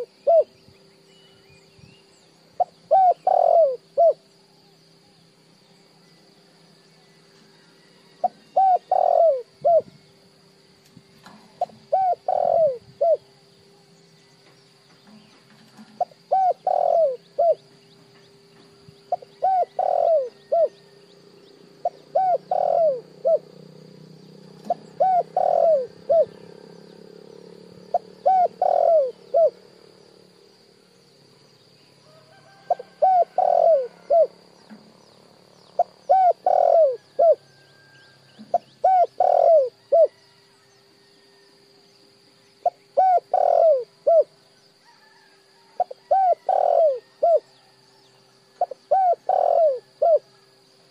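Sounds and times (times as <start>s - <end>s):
dove cooing: 0.0s - 0.6s, 2.6s - 4.3s, 8.1s - 10.0s, 11.3s - 13.4s, 15.0s - 17.8s, 19.0s - 21.0s, 21.8s - 23.6s, 24.5s - 26.7s, 27.7s - 29.6s, 32.4s - 34.8s, 35.7s - 40.3s, 42.6s - 47.5s, 48.6s - 50.5s
faint steady hum: 0.0s - 50.9s.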